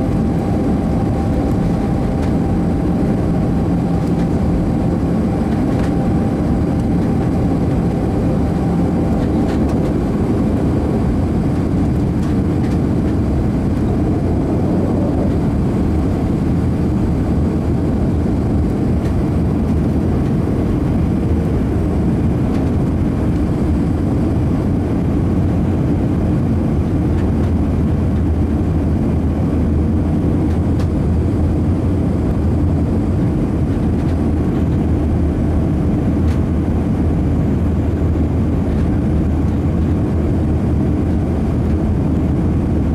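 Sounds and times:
deep hum: 0:00.0 - 0:18.6
jet engine roar and rushing air: 0:00.0 - 0:42.9.

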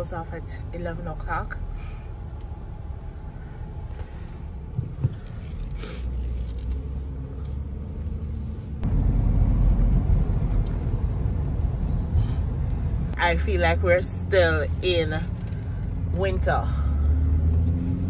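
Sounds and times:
car engine and tyre rumble: 0:00.0 - 0:18.0.

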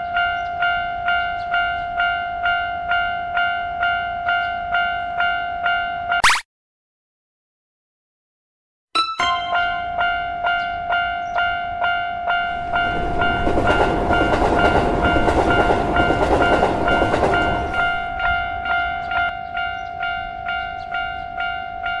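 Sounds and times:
railroad crossing bell ringing: 0:00.0 - 0:06.2, 0:09.0 - 0:22.0
passing train rumble: 0:09.6 - 0:22.0.

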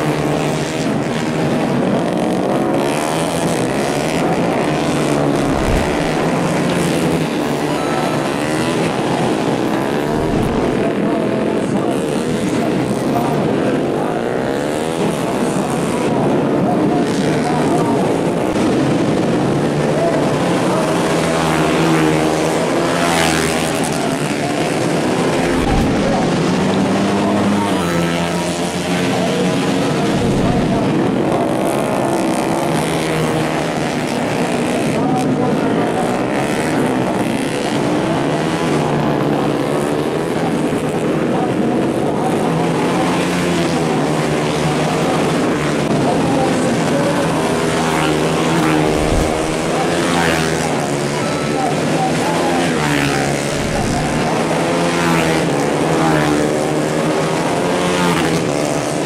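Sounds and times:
motorcycles racing at high revs: 0:00.0 - 0:59.0
motorcycle passing by: 0:02.0 - 0:11.2, 0:21.2 - 0:33.6, 0:46.9 - 0:59.0.

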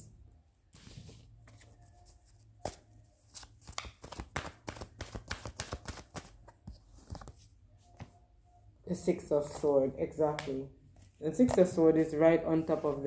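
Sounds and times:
playing cards shuffling: 0:00.8 - 0:07.5.

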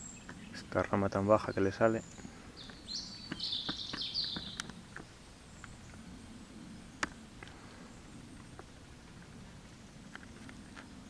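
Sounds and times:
songbird warbling: 0:01.4 - 0:09.2
faint clicks and rustles: 0:06.9 - 0:11.0.

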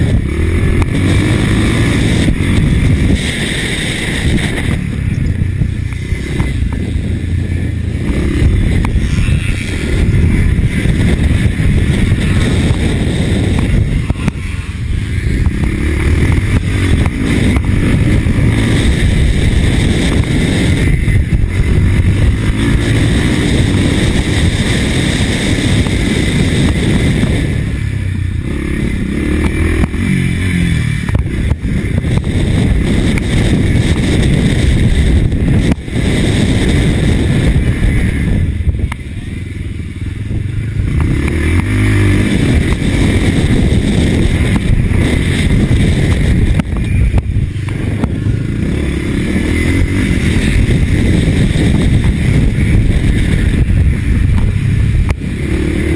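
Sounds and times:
motorcycle engine revving: 0:00.0 - 0:55.9.

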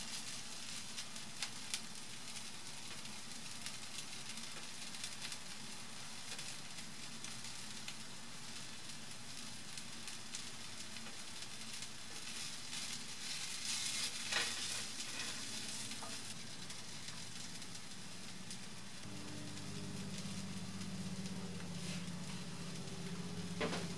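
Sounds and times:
onions sizzling in a frying pan: 0:00.0 - 0:23.9
wooden spatula scraping a pan: 0:12.2 - 0:16.3.

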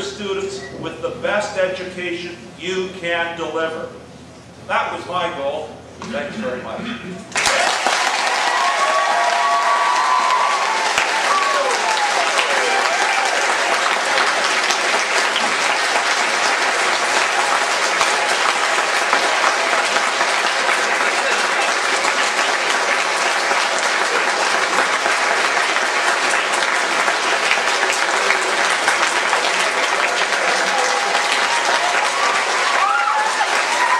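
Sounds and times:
crowd applauding: 0:07.3 - 0:33.9.

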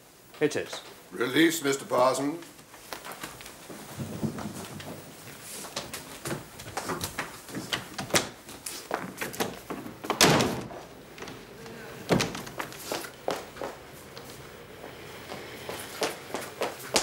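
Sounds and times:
footsteps: 0:02.4 - 0:17.0
door banging: 0:10.0 - 0:10.9.

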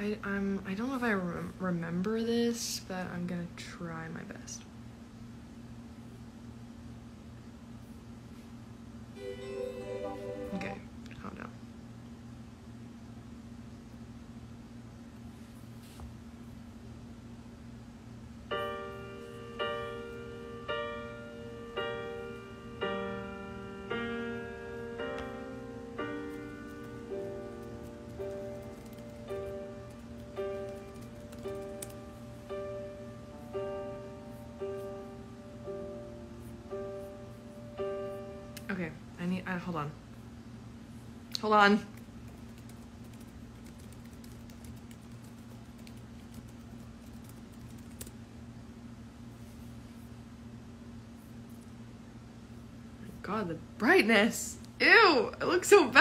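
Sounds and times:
steady low hum: 0:00.0 - 0:56.0
piano block chords: 0:09.2 - 0:10.9, 0:18.5 - 0:38.8.

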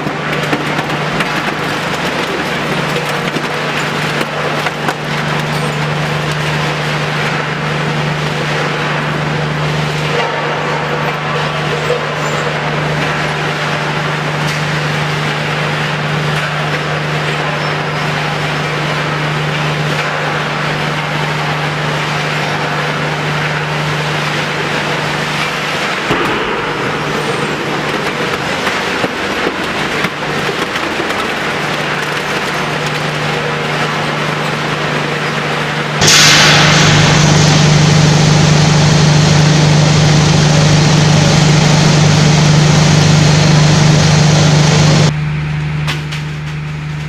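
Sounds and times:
motor hum: 0:18.7 - 0:47.0.

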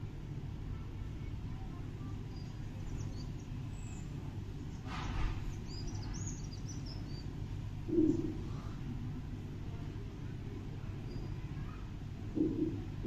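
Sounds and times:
low background rumble: 0:00.0 - 0:13.0
small birds chirping: 0:00.9 - 0:08.8, 0:10.8 - 0:13.0.

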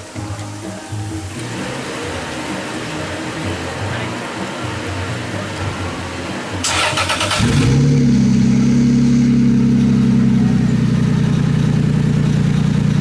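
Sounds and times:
engine starter cranking: 0:06.6 - 0:08.2
engine fast idle: 0:06.6 - 0:13.0.

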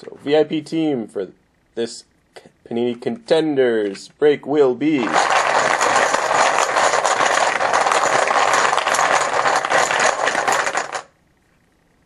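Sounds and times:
hard discs rattling in container: 0:05.0 - 0:11.1.

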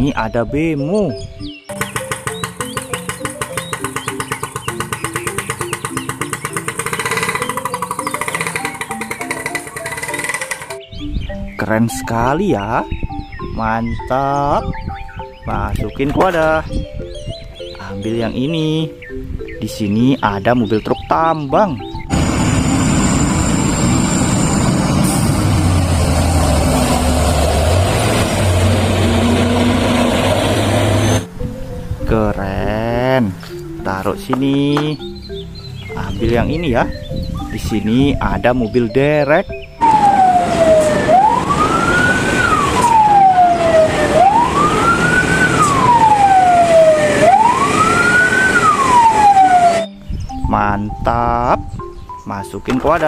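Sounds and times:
siren wailing: 0:22.1 - 0:31.3, 0:39.8 - 0:50.0
diesel truck engine driving past: 0:22.1 - 0:31.4, 0:39.8 - 0:49.9.

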